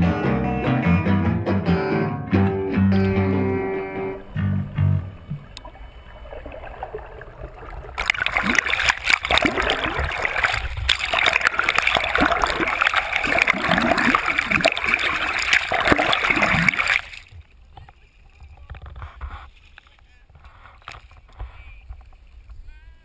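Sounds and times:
water splashing and gurgling: 5.0 - 17.5.

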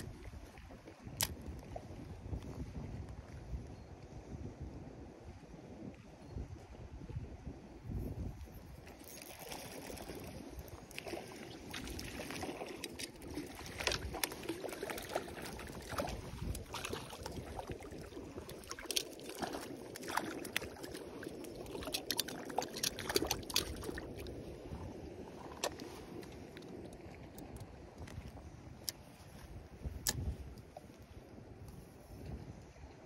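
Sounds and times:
water splashing and sloshing: 8.6 - 31.2.

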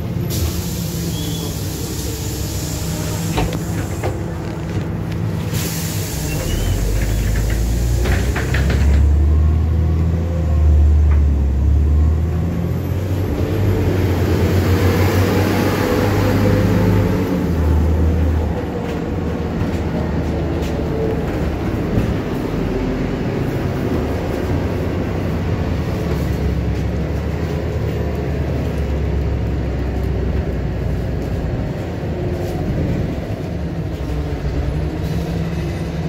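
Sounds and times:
bus doors hissing and clunking: 0.0 - 9.2
bus engine drone: 0.0 - 36.0.

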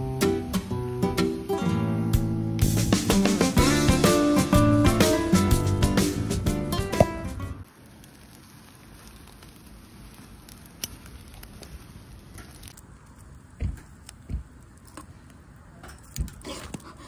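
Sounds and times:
fire crackling: 0.0 - 17.0
shrimp sizzling on a grill: 0.0 - 17.0
soft low thumps: 13.6 - 14.6.

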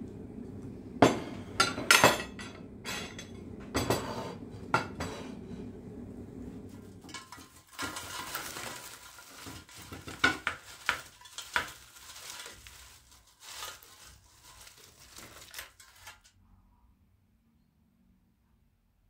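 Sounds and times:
potato wedges clattering onto board: 7.0 - 12.7.

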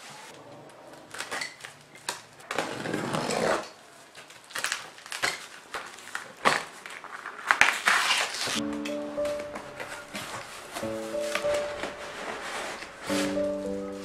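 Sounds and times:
plastic crackling: 0.9 - 2.6, 4.0 - 14.0
tape and plastic wrap tearing: 1.0 - 8.6, 10.3 - 13.9.

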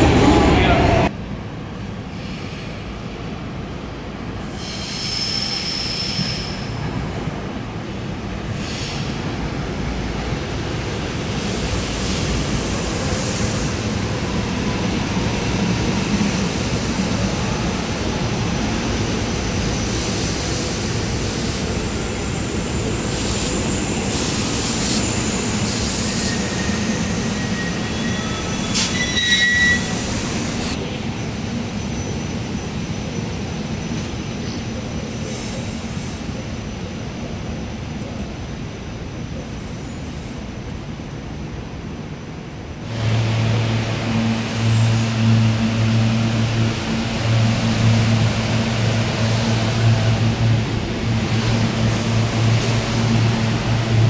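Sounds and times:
train wheels rumbling on rail: 0.0 - 54.0
high-pitched train squeals: 4.4 - 6.8, 19.6 - 30.8.

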